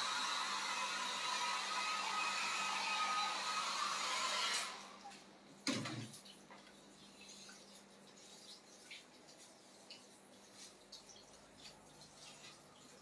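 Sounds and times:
hair dryer blowing: 0.0s - 5.0s.

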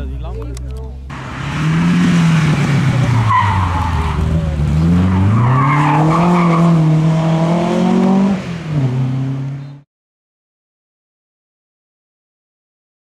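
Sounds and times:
rally car engine revving: 1.1s - 9.8s.

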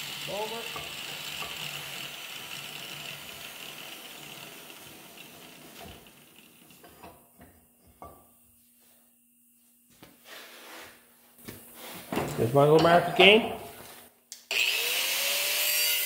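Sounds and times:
angle grinder running down: 0.0s - 7.0s, 14.5s - 16.0s.

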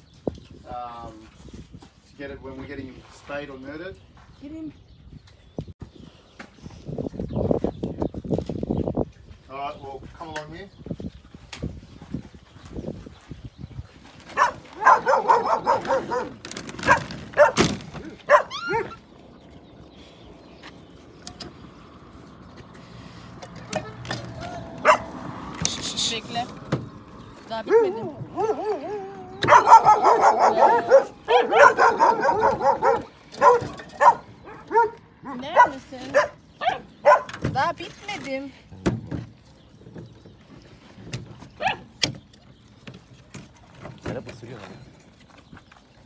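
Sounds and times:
dogs barking: 14.3s - 19.0s, 24.4s - 25.4s, 27.6s - 37.4s, 41.5s - 42.0s
dog whining yips: 14.4s - 19.0s, 27.7s - 35.0s, 35.6s - 37.3s, 41.6s - 42.0s.

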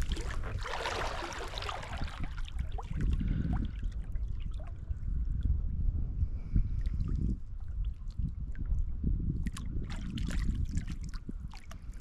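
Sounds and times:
water splashing from paddling: 0.0s - 3.1s
wind rumble on microphone: 0.0s - 12.0s.

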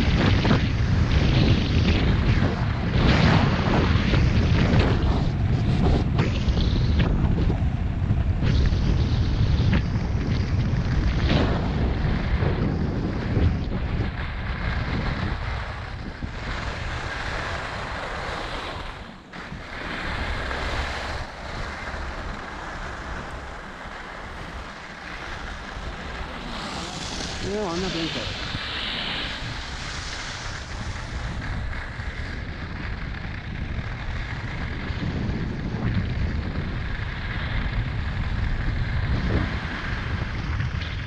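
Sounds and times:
wind buffeting microphone: 0.0s - 41.0s
skis hissing on packed snow: 16.5s - 32.3s.

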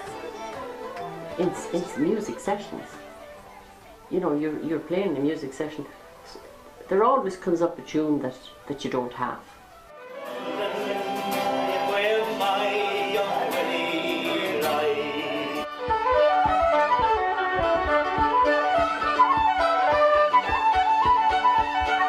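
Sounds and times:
fiddle: 0.0s - 4.0s, 9.9s - 22.0s
flute: 9.9s - 22.0s
strummed acoustic guitar: 10.0s - 18.2s.

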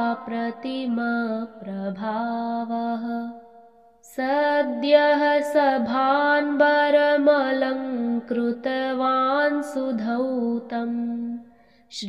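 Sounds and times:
person chanting melodically: 0.0s - 3.4s.

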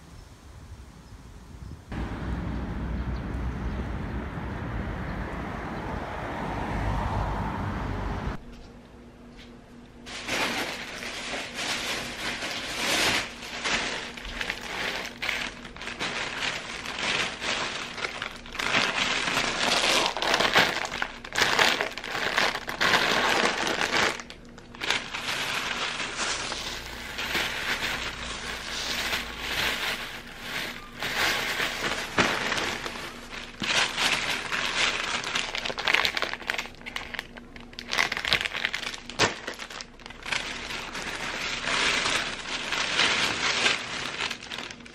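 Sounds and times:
plastic bags rustling: 10.0s - 44.9s.

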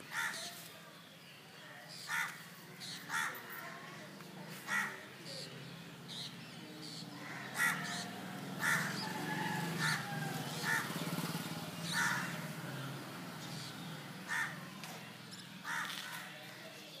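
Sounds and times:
crows cawing: 0.1s - 0.6s, 2.0s - 2.4s, 3.0s - 3.5s, 4.6s - 5.1s, 7.1s - 11.2s, 11.9s - 12.8s, 14.2s - 15.0s, 15.6s - 16.5s.

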